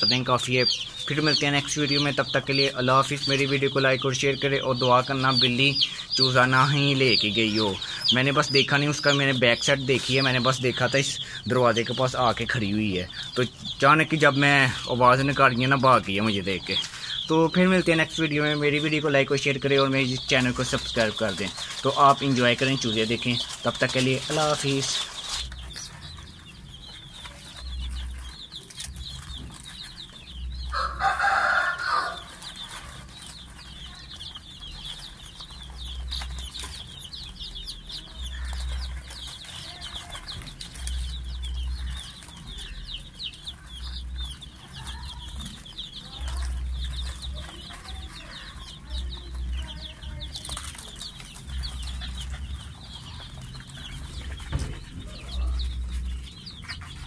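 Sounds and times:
chicks peeping: 0:00.0 - 0:57.0.

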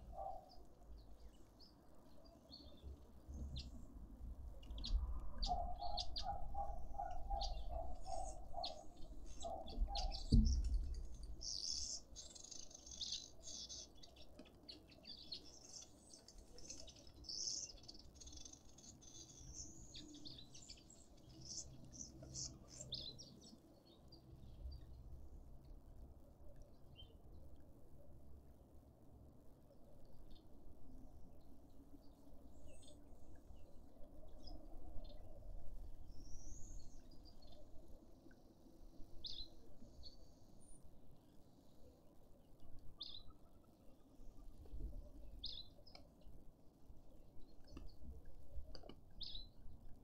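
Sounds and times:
small birds chirping: 0:00.0 - 0:03.9, 0:04.5 - 0:25.0, 0:43.0 - 0:46.3, 0:47.4 - 0:49.6
dull thump: 0:10.3 - 0:10.9.

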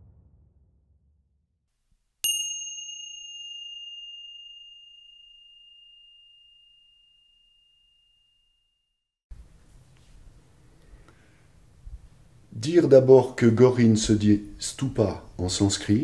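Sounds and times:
small bell chime: 0:02.2 - 0:09.1.

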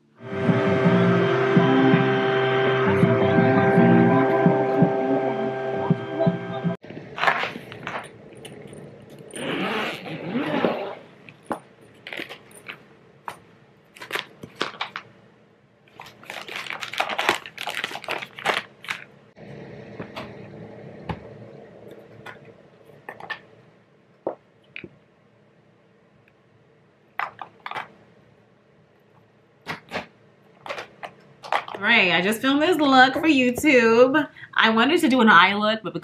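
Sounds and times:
case being unzipped: 0:07.2 - 0:11.4.

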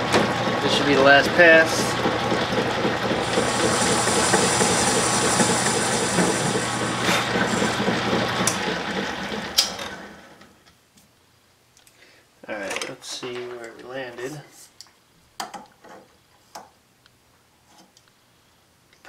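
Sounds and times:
metal lathe motor hum: 0:01.8 - 0:10.2
high cutting whine: 0:03.0 - 0:08.9.

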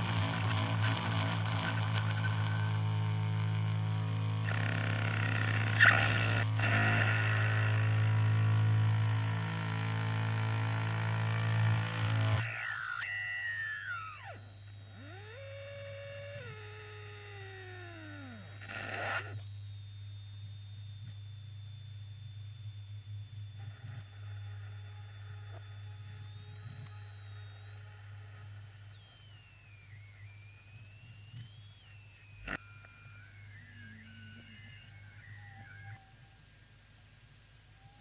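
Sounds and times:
high steady electronic whistle: 0:00.0 - 0:08.8, 0:12.4 - 0:38.0
low electronic hum: 0:00.0 - 0:36.8
tones sliding downward in pitch: 0:32.3 - 0:36.1.

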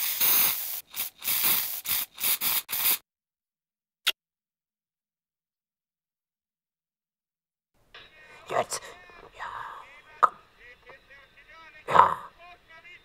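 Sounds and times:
pen scribbling: 0:00.0 - 0:03.0.

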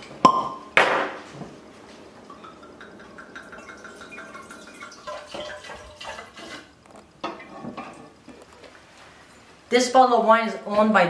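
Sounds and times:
wine pouring into decanter: 0:02.3 - 0:06.7.

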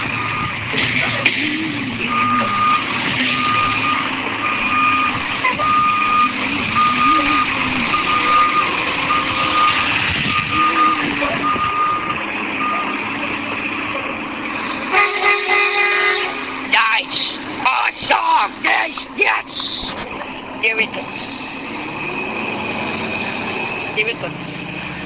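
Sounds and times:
reversing alarm beeping: 0:00.0 - 0:00.7, 0:01.6 - 0:13.1
diesel truck engine running: 0:00.0 - 0:25.0
truck horn: 0:01.3 - 0:13.1, 0:14.8 - 0:16.7.

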